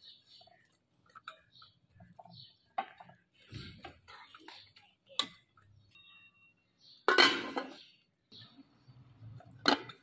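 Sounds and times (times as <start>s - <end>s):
metal pot lid clanking: 7.0s - 7.8s, 9.6s - 10.0s.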